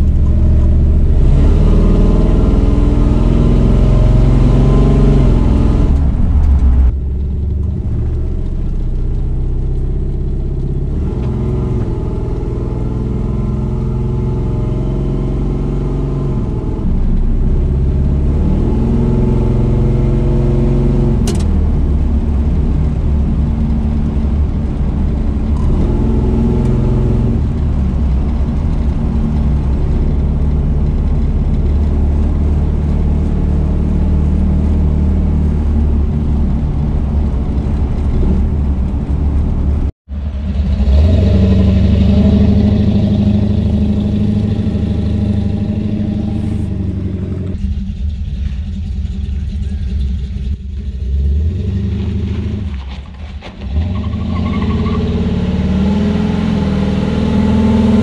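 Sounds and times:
loud v eight engine: 10.7 - 52.7, 53.7 - 58.0
sharp click: 21.2 - 21.6.

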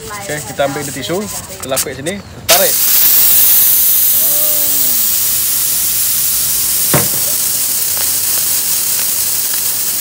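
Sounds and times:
pressure cooker steam hissing: 2.5 - 10.0.

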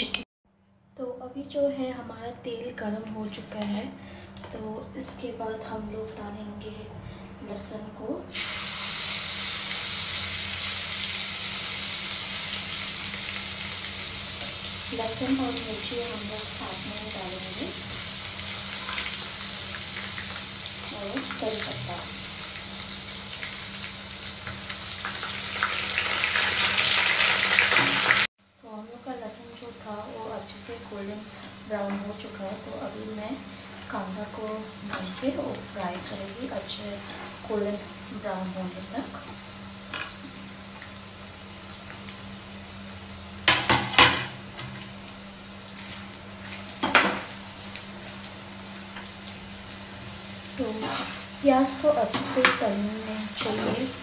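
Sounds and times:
food sizzling in hot oil: 8.3 - 54.0
spatula scraping pan: 50.6 - 51.3.

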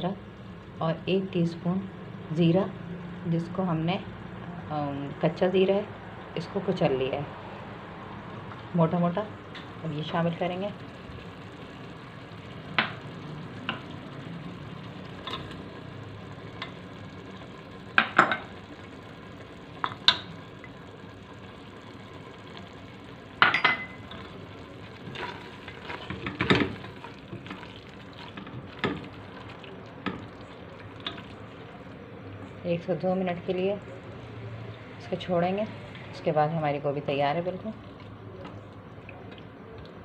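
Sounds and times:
food sizzling in oil: 7.5 - 32.6.

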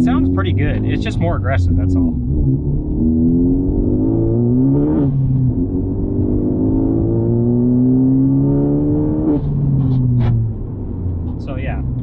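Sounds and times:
car engine accelerating: 0.0 - 12.0.

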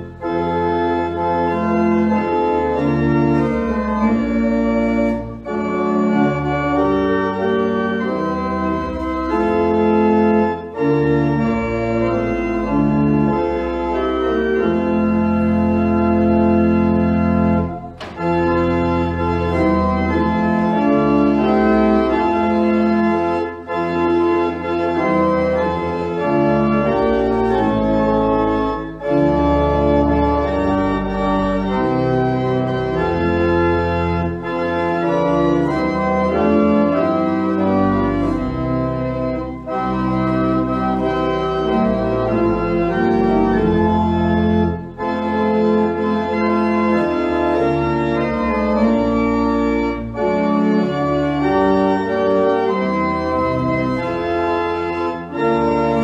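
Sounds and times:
church organ playing held chords: 0.0 - 56.0.

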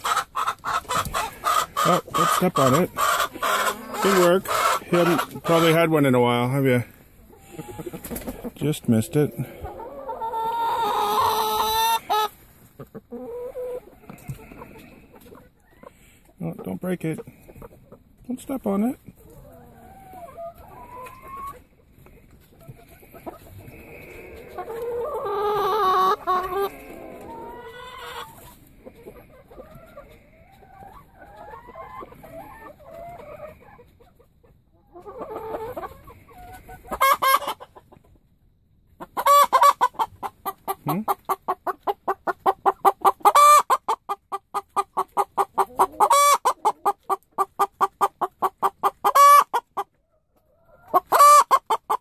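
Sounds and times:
hens clucking softly: 0.0 - 52.0
hen cackling loudly: 39.1 - 40.6, 48.4 - 49.6, 50.8 - 52.0.

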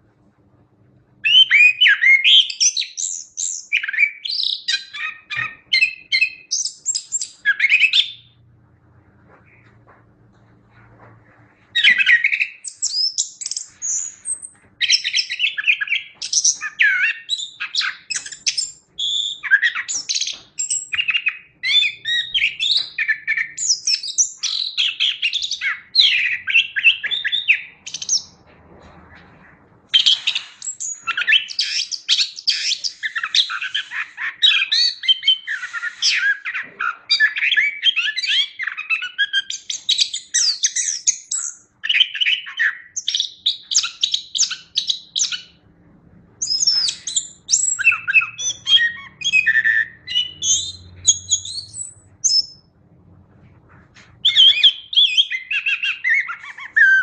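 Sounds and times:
thrush singing chirps and trills: 46.4 - 52.7.

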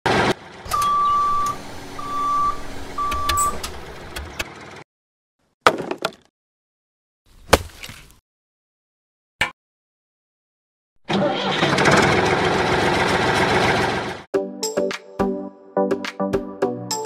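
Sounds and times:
tractor engine noise: 0.0 - 4.8, 11.0 - 14.3
reversing alarm beeping: 0.7 - 3.6.

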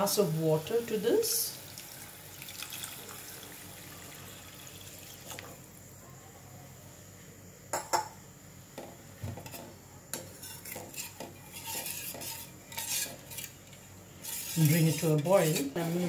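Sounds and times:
ladle scraping while stirring: 9.4 - 16.0.

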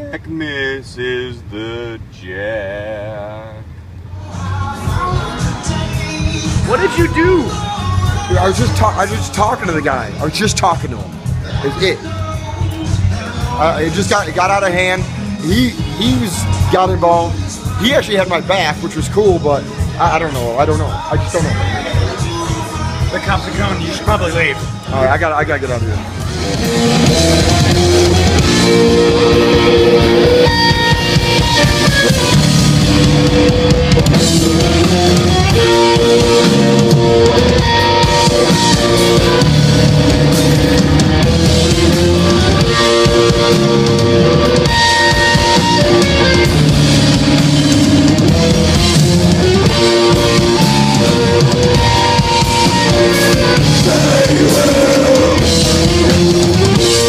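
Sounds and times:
bass guitar: 1.4 - 57.0
drum kit: 4.3 - 57.0
distorted electric guitar: 26.0 - 57.0.

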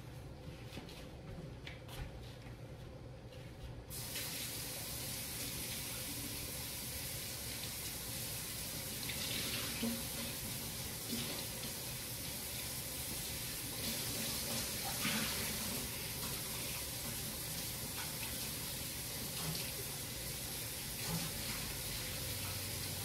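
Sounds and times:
water running into a sink: 3.9 - 23.0.

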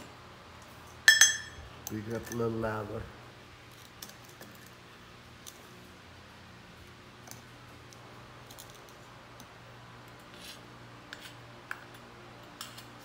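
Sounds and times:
steady low hum: 0.0 - 13.0
spatula scraping metal cup: 10.2 - 11.4.

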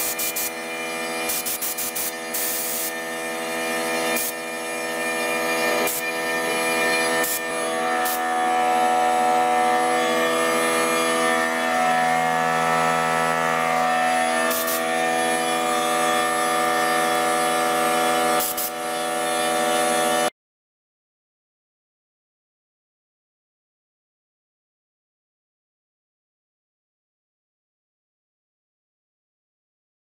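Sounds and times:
router spindle whining: 0.0 - 20.3.

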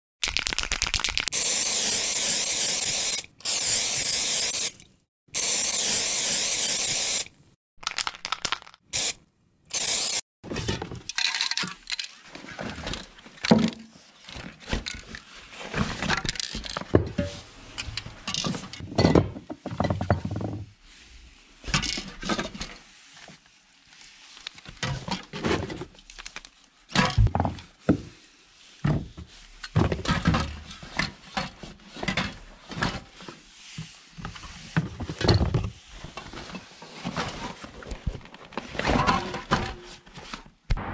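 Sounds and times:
spray cans knocking and clinking: 0.3 - 4.7, 5.4 - 7.2, 7.8 - 10.2
spray paint hiss: 0.9 - 4.8, 5.4 - 7.4, 8.9 - 10.2.

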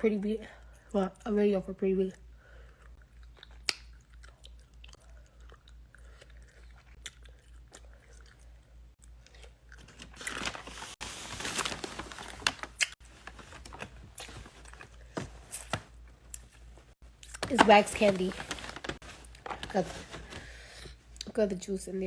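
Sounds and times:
person chewing candy: 2.5 - 10.2.

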